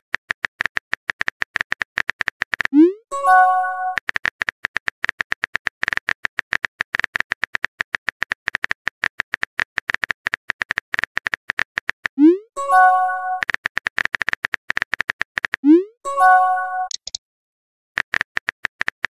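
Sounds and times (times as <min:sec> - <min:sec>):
phone keyboard clicks: 0:16.8 - 0:17.2.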